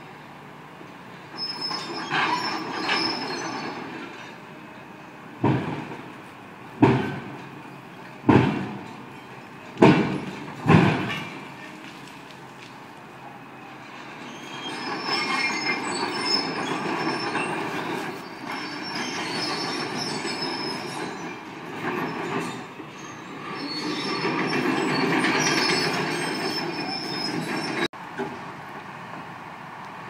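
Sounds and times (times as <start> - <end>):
excavator engine rumble: 0.0 - 30.0
metallic squealing and grinding: 1.4 - 4.4, 13.8 - 27.9.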